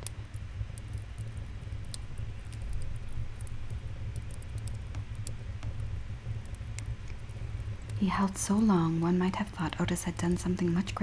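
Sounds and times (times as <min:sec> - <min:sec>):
fire crackling with pops: 0:00.0 - 0:11.0.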